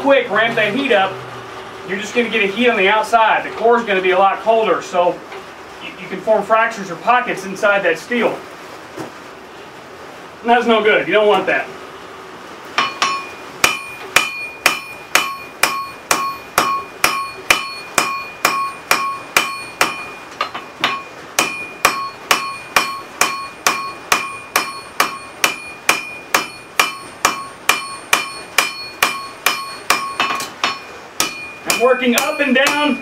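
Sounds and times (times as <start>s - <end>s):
hammer striking hot steel on anvil: 12.8s - 33.0s.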